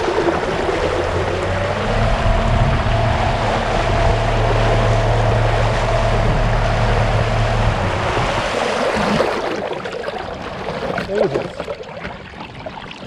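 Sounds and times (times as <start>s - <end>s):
electric motor humming and whining: 0.0s - 8.6s
rushing water: 0.0s - 13.0s
wind: 0.0s - 13.0s.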